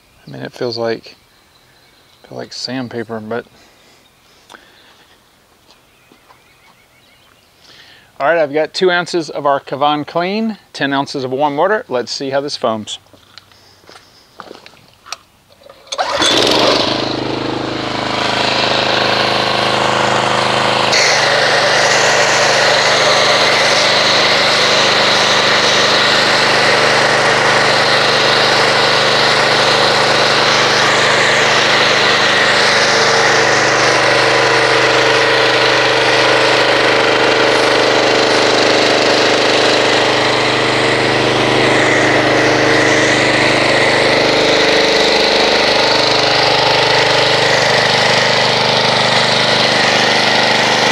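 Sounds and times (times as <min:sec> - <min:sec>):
pressure washer motor hum: 0:15.5 - 0:50.9.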